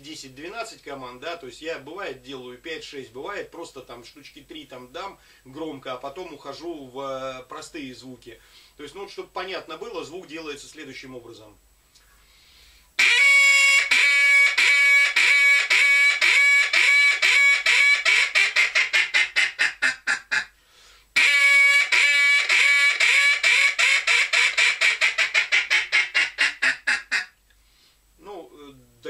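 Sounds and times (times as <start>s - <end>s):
duck call quacks: 13.0s - 20.6s, 21.2s - 27.4s.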